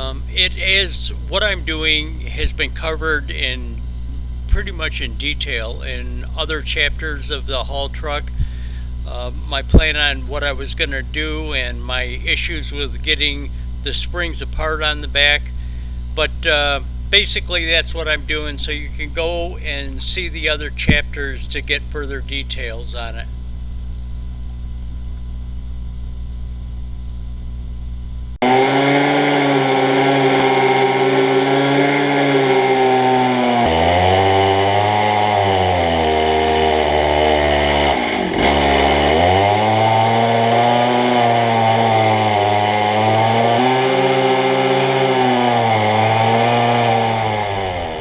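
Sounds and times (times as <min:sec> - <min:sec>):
cut-off saw cutting steel: 0:28.4 - 0:48.0.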